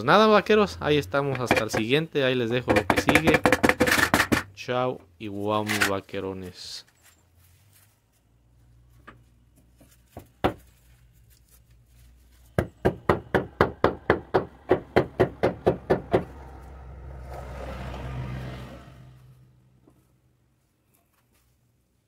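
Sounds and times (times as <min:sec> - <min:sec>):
mallet tapping stone: 0:01.3 - 0:01.9, 0:02.7 - 0:04.3.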